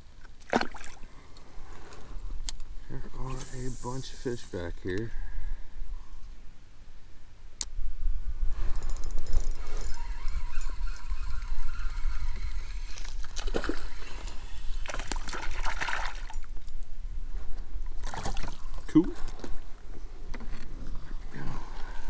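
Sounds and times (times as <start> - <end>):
fishing reel clicking: 8.7 - 14.7.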